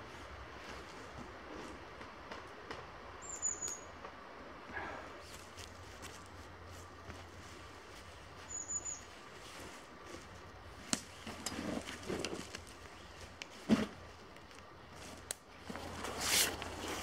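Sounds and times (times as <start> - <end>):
high bird chirp: 3.2 - 3.9, 8.5 - 9.1
soft rustling: 5.2 - 17.0.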